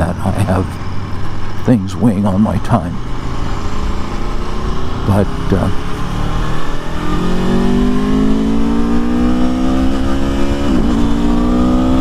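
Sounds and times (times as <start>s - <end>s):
motorcycle engine accelerating: 3.0s - 12.0s.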